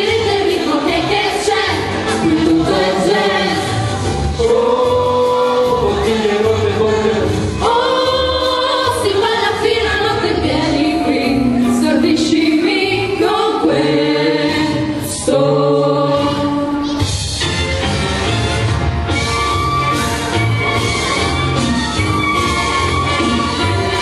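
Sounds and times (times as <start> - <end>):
women singing together: 0.0 - 6.3, 7.6 - 16.8
amplified instrumental accompaniment: 0.0 - 24.0.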